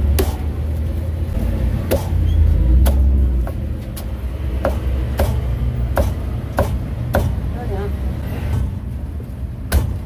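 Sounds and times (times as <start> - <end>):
cleaver chopping on wooden block: 1.9 - 2.2, 4.6 - 7.4, 9.7 - 10.0.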